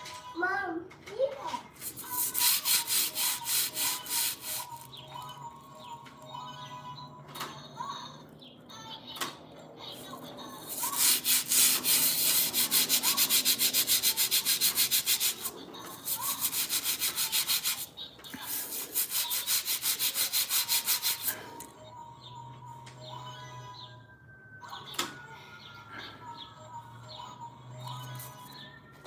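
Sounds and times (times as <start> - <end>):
hand scrubbing hard floor: 1.8 - 4.9, 10.6 - 21.3.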